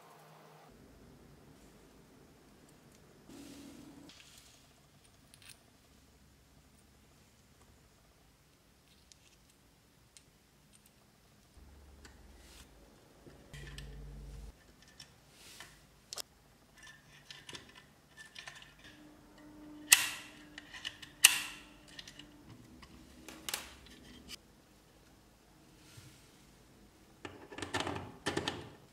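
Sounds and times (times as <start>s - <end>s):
metal parts clicking and tapping: 13.3s - 15.2s, 16.1s - 24.4s.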